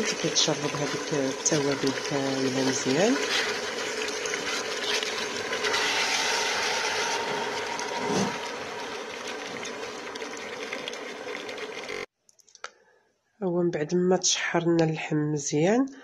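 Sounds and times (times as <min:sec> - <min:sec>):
meat sizzling in oil: 0:00.0 - 0:12.1
wooden spoon stirring: 0:00.0 - 0:12.1.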